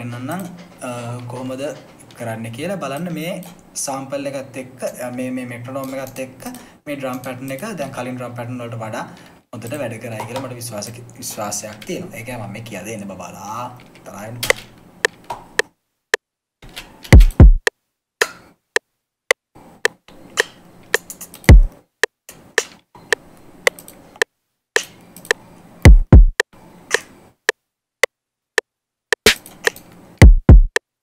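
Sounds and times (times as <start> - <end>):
deep kick drum hits: 17.2 - 17.6, 25.9 - 26.4, 30.2 - 30.8.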